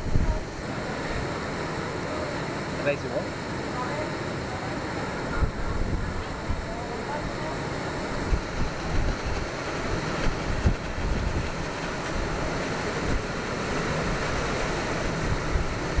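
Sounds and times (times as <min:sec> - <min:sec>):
wind buffeting microphone: 0:00.0 - 0:01.7, 0:05.1 - 0:16.0
river rushing in rapids: 0:00.0 - 0:16.0.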